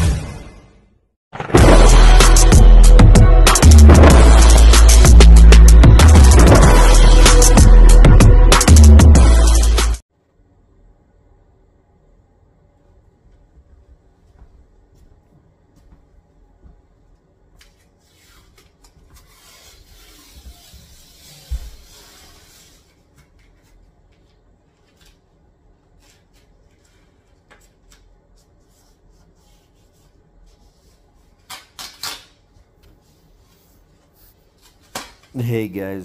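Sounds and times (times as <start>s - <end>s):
rustling and shuffling: 32.5s - 35.6s.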